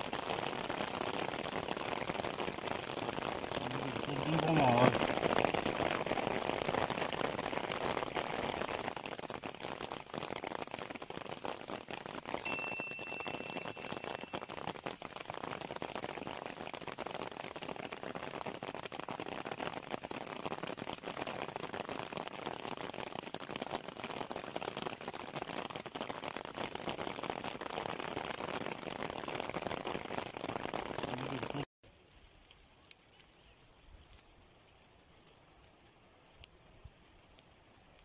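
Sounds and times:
faint hiss: 0:00.0 - 0:19.6, 0:31.0 - 0:38.0
rain pattering: 0:00.0 - 0:38.0.

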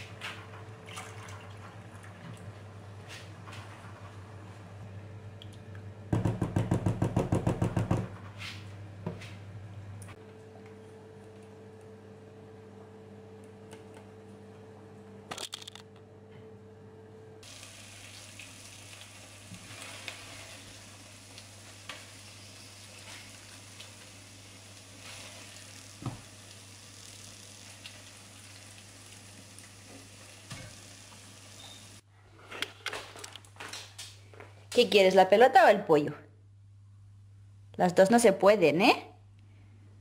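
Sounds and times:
faint steady hum: 0:08.6 - 0:19.6
steady hiss: 0:17.4 - 0:32.0.

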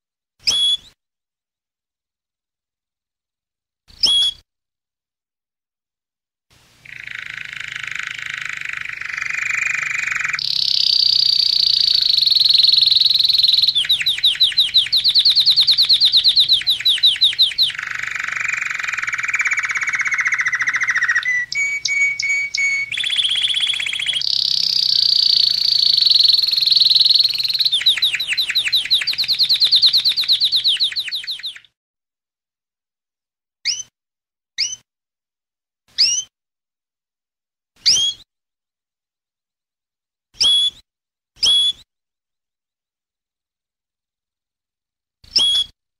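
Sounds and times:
canary call notes: 0:06.8 - 0:31.7
canary singing trills: 0:06.8 - 0:31.7.

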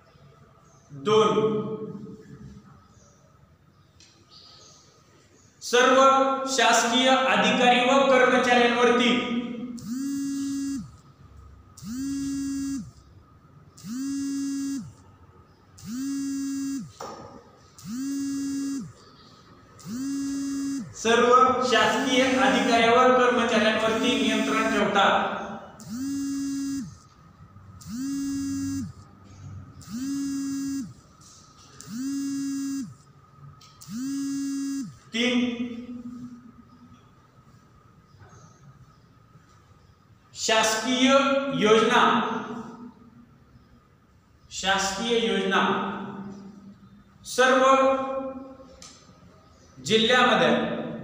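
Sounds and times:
electronic buzzing beeps: 0:09.7 - 0:11.1, 0:11.7 - 0:15.1, 0:15.8 - 0:17.0, 0:17.6 - 0:22.6, 0:23.8 - 0:25.0, 0:25.8 - 0:33.2, 0:33.8 - 0:35.1.

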